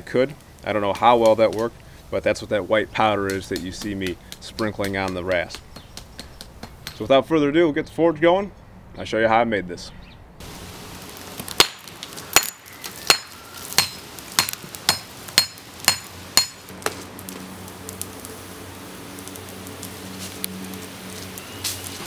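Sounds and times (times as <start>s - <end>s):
hammer striking metal on anvil: 12.4s - 16.6s.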